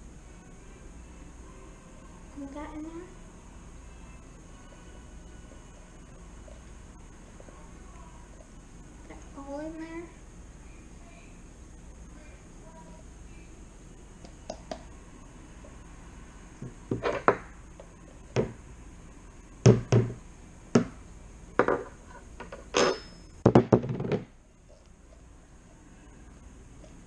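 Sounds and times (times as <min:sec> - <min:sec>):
glue bottle knocking on plastic bowl: 0:19.7 - 0:20.2.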